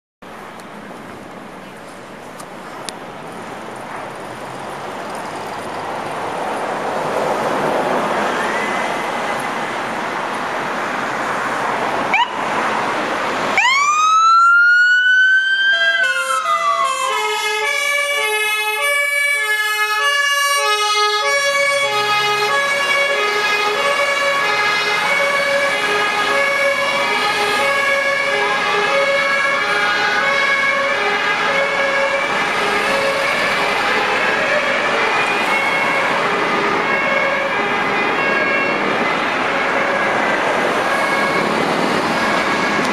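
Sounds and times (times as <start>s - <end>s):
vehicle engine noise: 0.2s - 42.9s
two-tone sirens: 7.8s - 9.5s, 12.0s - 12.6s, 13.5s - 42.9s
fire siren winding up: 12.1s - 12.4s, 13.6s - 28.2s.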